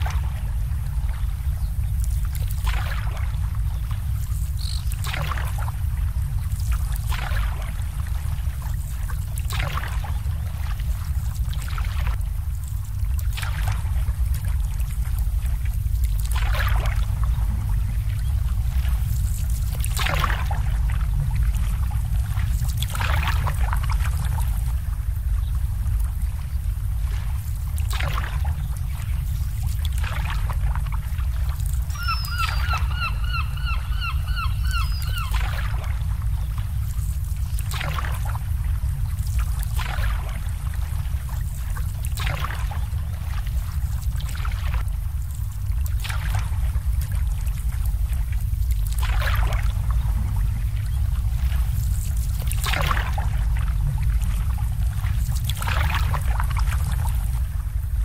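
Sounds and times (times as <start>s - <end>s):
steady low rumble: 0.0s - 58.0s
water lapping against boats: 0.0s - 58.0s
bird calling repeated notes: 31.9s - 35.5s.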